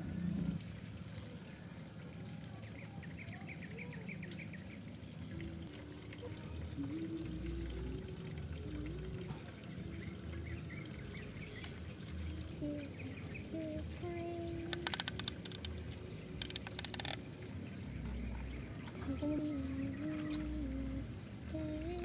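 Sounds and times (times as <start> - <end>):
rapid clicking: 14.6 - 17.2
toy scraping through soil: 14.7 - 15.8.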